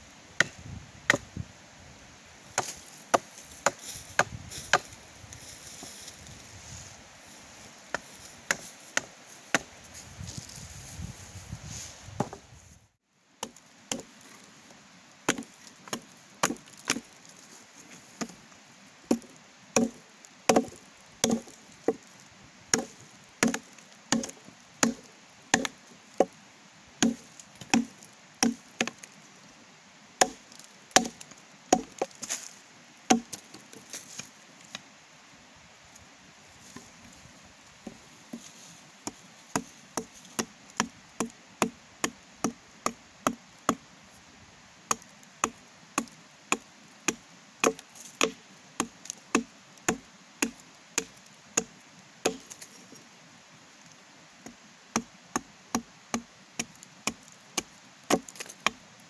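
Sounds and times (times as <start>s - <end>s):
blade chopping wood: 13.4s - 14.1s, 15.3s - 17.1s, 19.1s - 22.1s, 22.7s - 26.4s, 27.0s - 29.1s, 30.2s - 32.2s, 33.1s - 33.7s, 37.8s - 43.8s, 44.9s - 52.7s, 54.4s - 58.8s.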